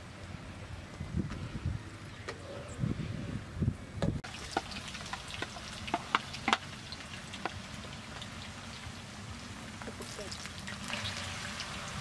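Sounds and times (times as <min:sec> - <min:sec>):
potatoes sizzling in oil: 0:04.2 - 0:12.0
oil clicks and pops: 0:04.3 - 0:08.3.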